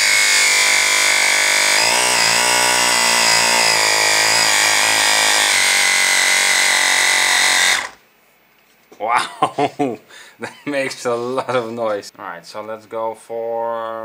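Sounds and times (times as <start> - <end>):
air compressor running: 0.0 - 8.0.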